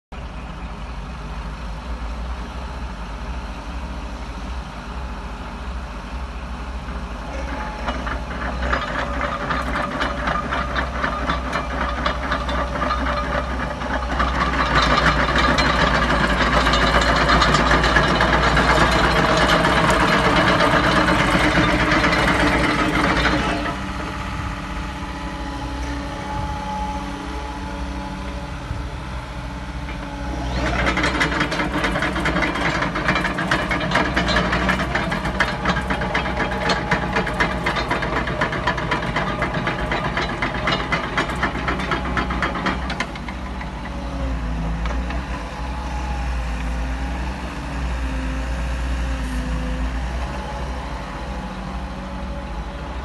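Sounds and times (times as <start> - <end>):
excavator diesel engine: 0.2 - 53.0
steel tracks clanking: 6.6 - 47.4.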